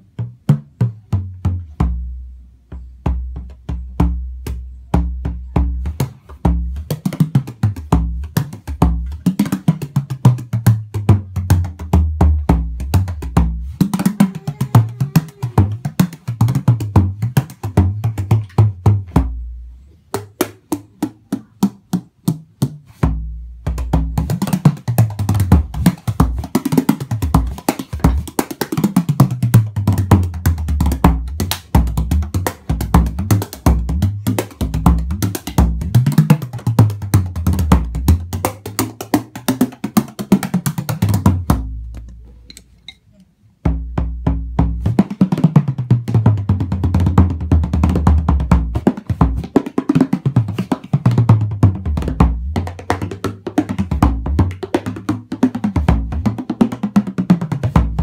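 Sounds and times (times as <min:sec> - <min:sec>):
frame drum played with tipper: 0:22.6 - 0:42.2, 0:43.7 - 0:58.0.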